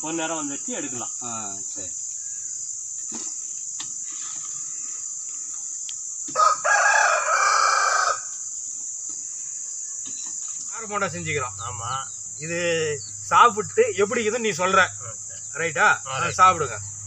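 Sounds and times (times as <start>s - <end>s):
crickets chirring: 0.0s - 17.0s
rooster crowing: 6.3s - 8.4s.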